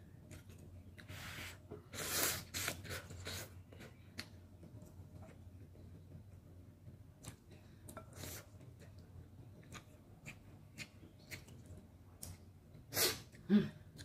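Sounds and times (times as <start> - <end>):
eating sounds: 7.2 - 12.4.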